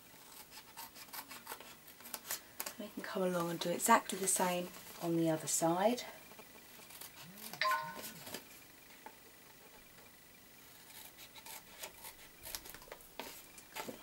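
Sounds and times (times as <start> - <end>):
brief ringing tone: 7.6 - 8.4.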